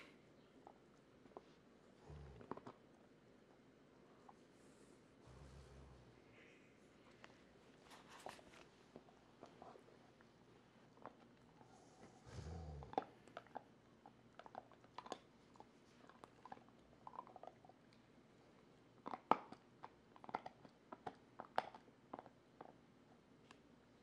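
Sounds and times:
dog gnawing a chew bone: 2.2s - 4.4s, 12.8s - 18.0s, 18.9s - 23.6s.

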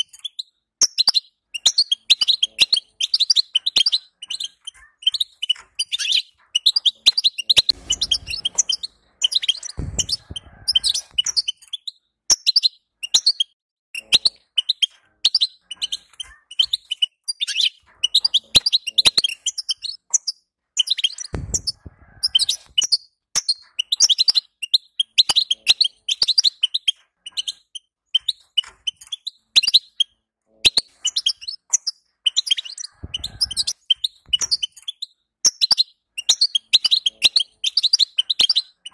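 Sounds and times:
soft low thuds: 9.8s - 11.1s, 21.4s - 22.0s.

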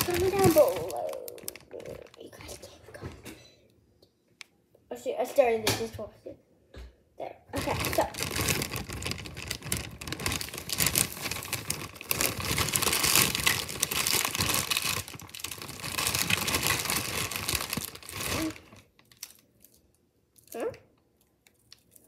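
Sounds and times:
plastic bag crinkling: 0.0s - 2.8s, 7.5s - 20.6s.

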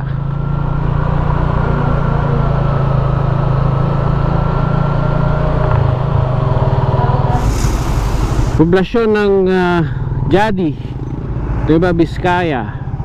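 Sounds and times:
motorcycle engine running: 0.0s - 13.0s
road noise: 0.0s - 13.0s
wind noise: 5.7s - 8.8s.

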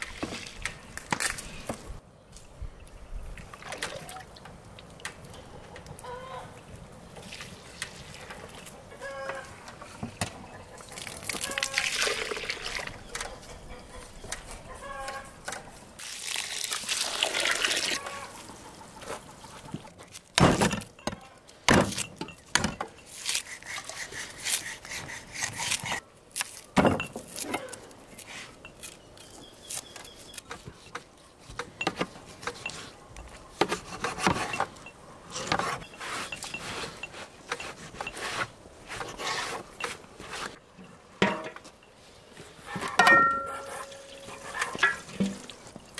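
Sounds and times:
water poured and splashing: 10.9s - 13.0s, 16.0s - 18.0s, 43.5s - 45.9s.

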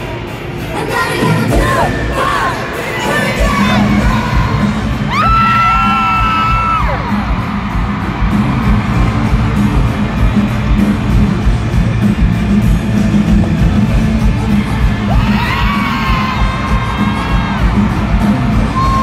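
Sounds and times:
pop concert music over sound system: 0.0s - 19.0s
fans yelling: 14.5s - 19.0s.

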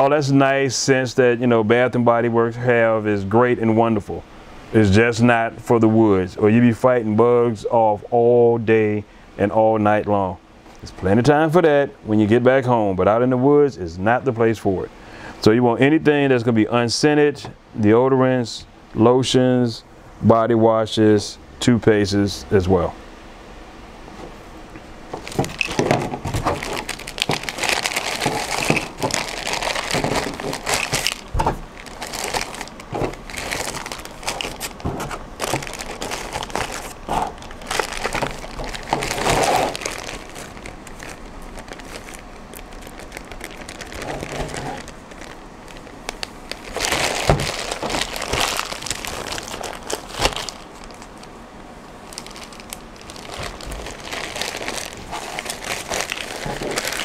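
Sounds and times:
plastic bag crinkling: 25.2s - 51.4s, 52.0s - 57.0s.

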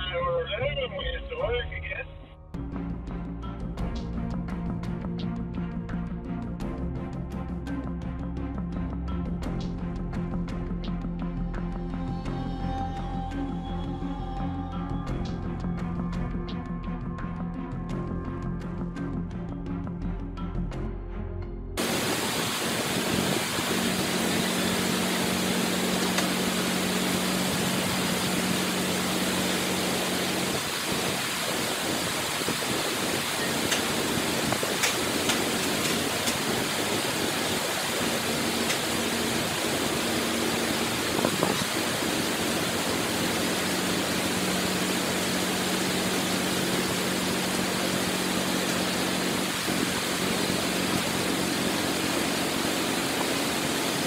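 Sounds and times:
bulldozer diesel engine running: 21.8s - 54.0s
loud even hiss: 21.8s - 54.0s.

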